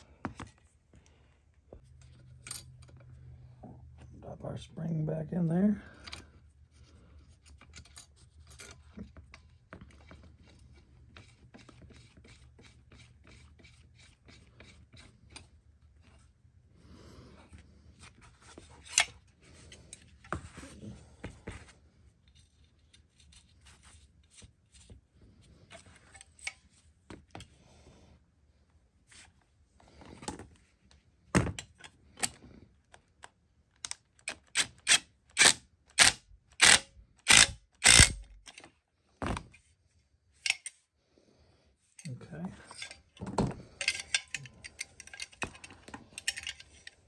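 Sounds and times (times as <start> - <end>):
metal tool parts clicking: 33.8 - 38.7, 40.4 - 40.8, 43.8 - 47.0.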